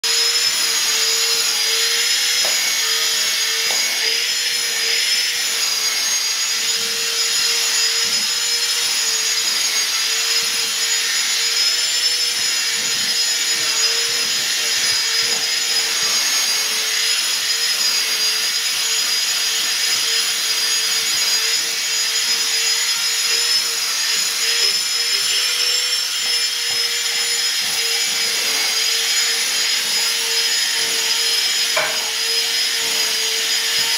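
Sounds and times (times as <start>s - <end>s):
vacuum cleaner whining: 0.0s - 33.9s.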